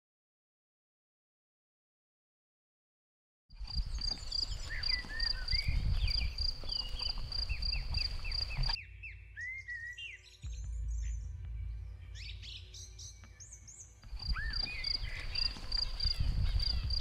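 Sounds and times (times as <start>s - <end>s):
steady low rumble: 3.6s - 8.8s, 10.4s - 17.0s
birds chirping: 3.6s - 17.0s.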